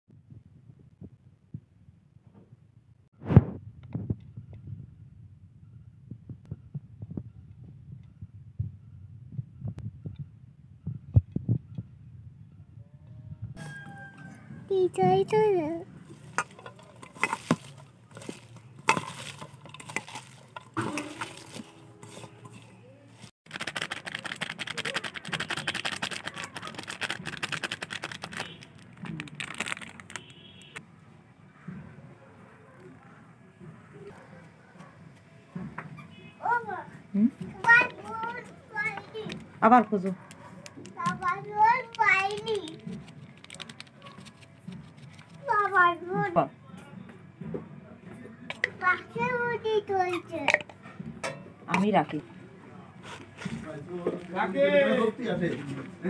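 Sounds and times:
flour pattering onto leaves: 23.5s - 30.7s.

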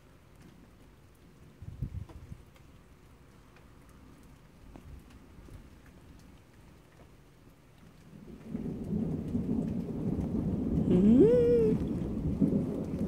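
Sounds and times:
faint rain: 0.0s - 13.0s
water drips: 0.0s - 13.0s
thunder rumble: 8.1s - 13.0s.

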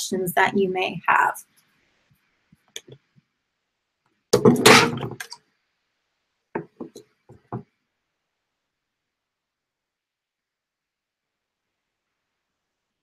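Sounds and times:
loud thud: 4.4s - 5.2s.

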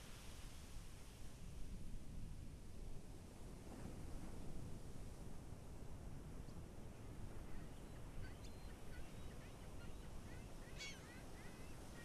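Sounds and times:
faint bird calls: 7.4s - 12.0s.

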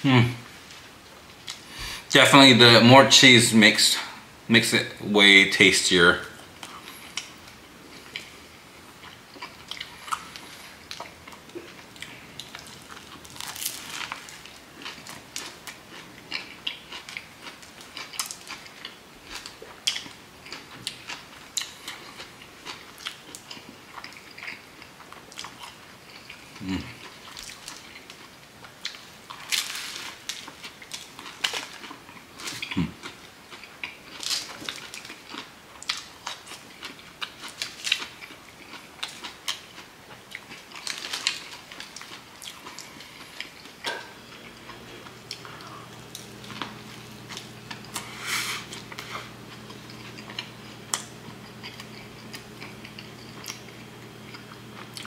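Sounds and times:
chewing: 6.6s - 55.0s
crunchy sandwich biting: 9.4s - 24.6s.

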